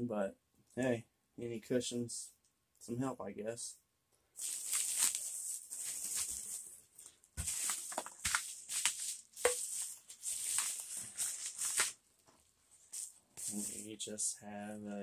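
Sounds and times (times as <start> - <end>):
paper packaging crinkling: 4.4 - 12.0.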